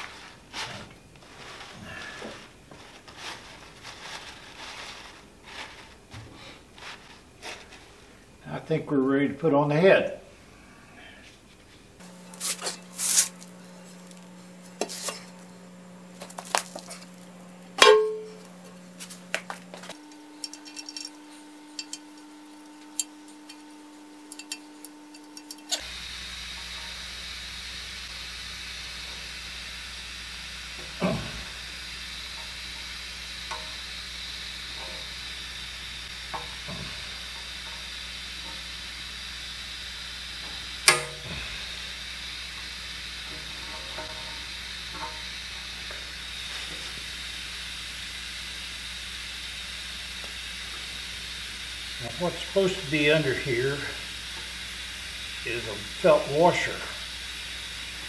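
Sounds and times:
steady hiss: 18.6 - 58.0.

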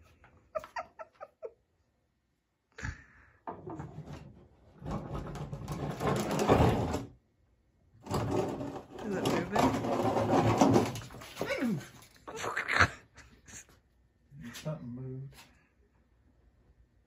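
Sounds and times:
plastic trash can scraping and rattling: 3.6 - 7.1, 8.0 - 12.0.

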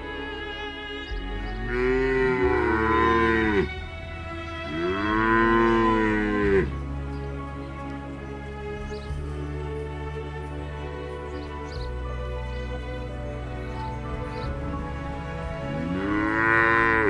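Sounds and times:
background music: 0.0 - 17.0
cattle mooing: 1.5 - 3.8, 4.7 - 6.7, 15.8 - 17.0.

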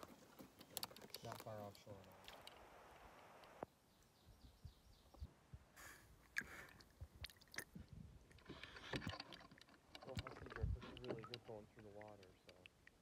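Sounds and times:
water dripping into lake: 0.6 - 3.7, 6.2 - 13.0.

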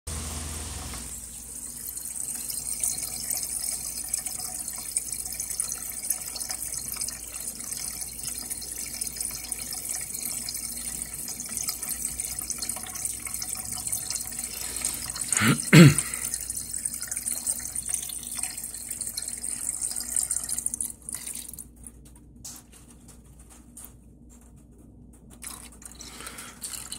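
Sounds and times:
electric water pump: 0.1 - 21.4
coolant splashing and gurgling: 1.7 - 21.5.

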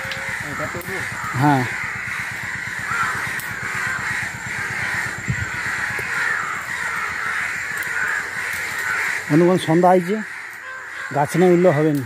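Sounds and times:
low rumble: 0.0 - 8.4
crows cawing: 0.0 - 12.0.

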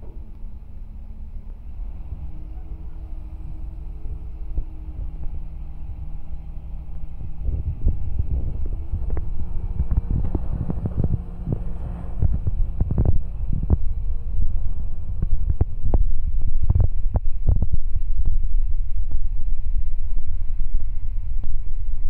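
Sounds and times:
crane engine rumbling: 0.0 - 22.0
wind buffeting microphone: 0.0 - 22.0.

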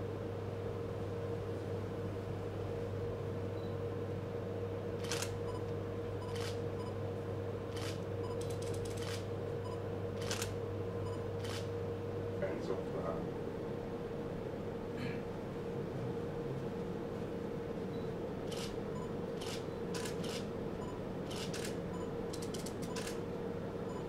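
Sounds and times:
steady hum: 0.0 - 24.0
camera shutters clicking: 5.0 - 5.4, 7.8 - 9.2, 10.2 - 10.5, 11.4 - 11.7, 18.5 - 18.8, 19.4 - 20.4, 21.3 - 21.8.

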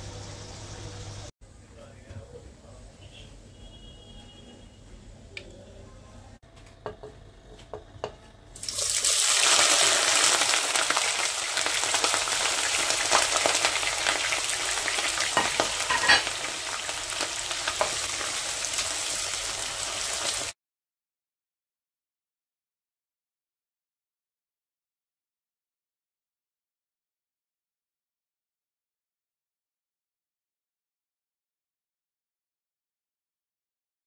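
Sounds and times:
onions sizzling in hot oil: 0.0 - 1.3, 8.6 - 20.6
spatula tapping and scraping pot: 6.6 - 8.4.

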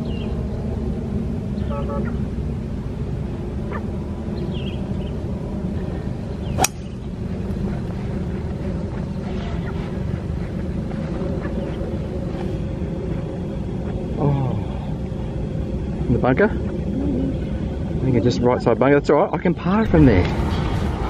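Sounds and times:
low background rumble: 0.0 - 21.0
golf club striking ball: 6.6 - 7.0.

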